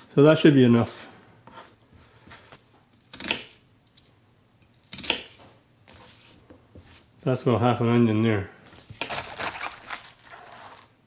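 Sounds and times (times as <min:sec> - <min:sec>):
knife cutting onion on board: 0:01.5 - 0:03.6, 0:04.6 - 0:07.1, 0:08.8 - 0:10.8.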